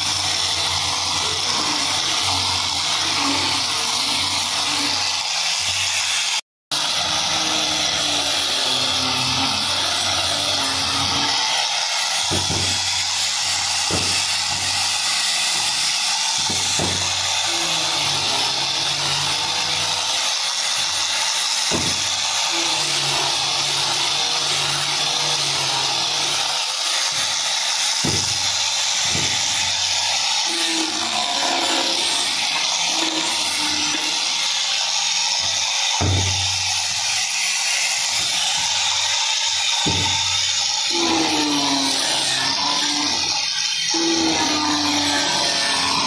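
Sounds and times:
angle grinder sanding wood: 0.0 - 46.0.

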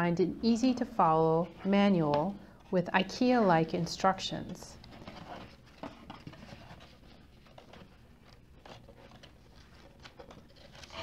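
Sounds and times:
paper manual rustling: 4.8 - 11.0.

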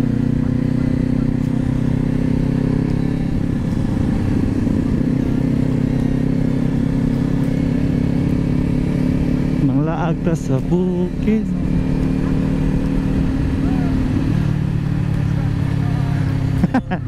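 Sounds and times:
motorcycle engine cruising: 0.0 - 17.0
road rumble: 0.0 - 17.0.

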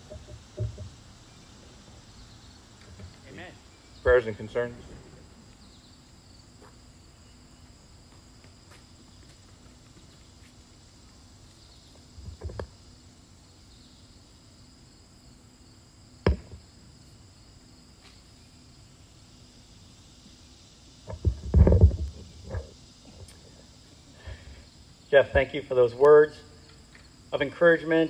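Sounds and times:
microphone handling knocks and clicks: 0.0 - 1.0, 21.1 - 22.7
insects droning: 0.0 - 28.0.

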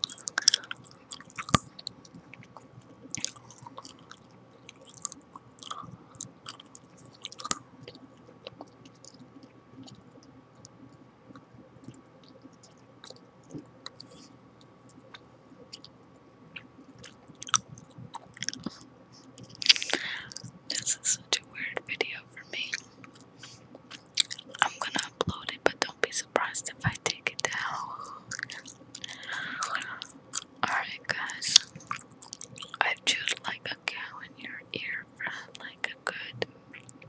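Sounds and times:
gum chewing mouth smacks: 0.0 - 14.2, 16.6 - 20.8, 22.7 - 25.4, 28.3 - 30.5, 31.5 - 32.8.

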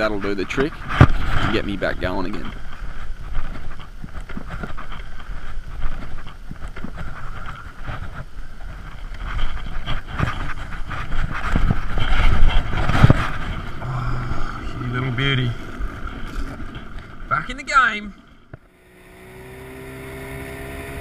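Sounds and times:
outboard motor running: 18.3 - 21.0.

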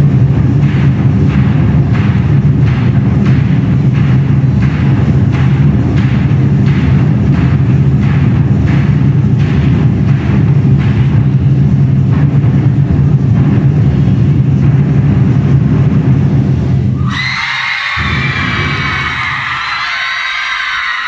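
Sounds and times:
large drums rolling: 0.0 - 21.0
high-pitched shouting and cheering: 17.0 - 21.0.

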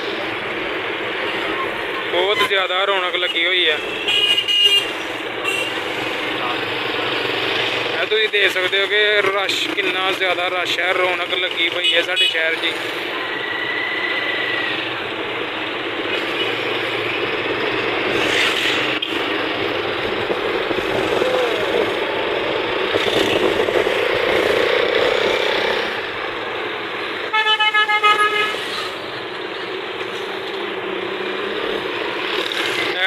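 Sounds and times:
road and engine noise: 0.0 - 33.0
vehicle horn toots: 3.9 - 5.7, 27.3 - 28.6.

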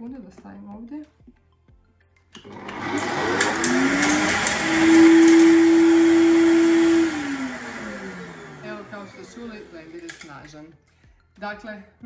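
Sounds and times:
blender motor whining: 2.4 - 10.4.

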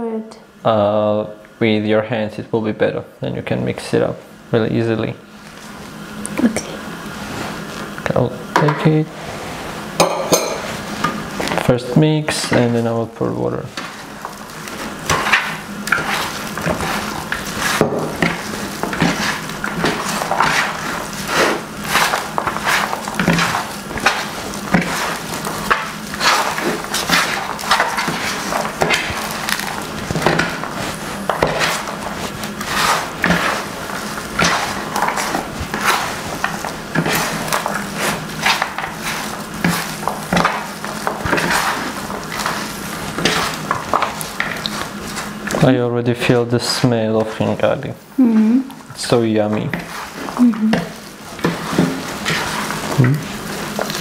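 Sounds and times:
hands squishing wet meat mixture: 13.6 - 45.8, 51.0 - 54.0.

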